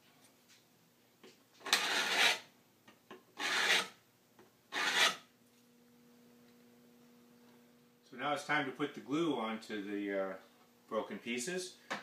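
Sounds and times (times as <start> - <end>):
plane blade scraping wood: 1.7 - 2.4, 3.4 - 3.9, 4.7 - 5.2.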